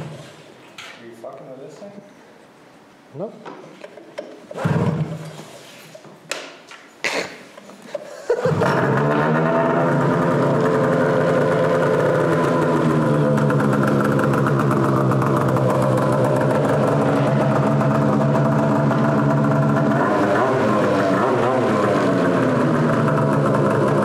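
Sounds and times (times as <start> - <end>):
snowmobile engine idling: 8.6 - 24.0.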